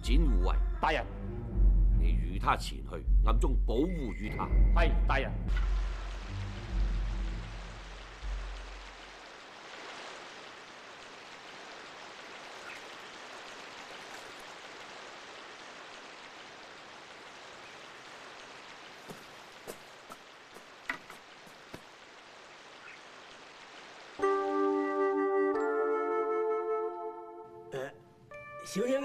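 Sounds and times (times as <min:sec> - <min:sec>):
stream running over rocks: 0:05.5 - 0:24.7.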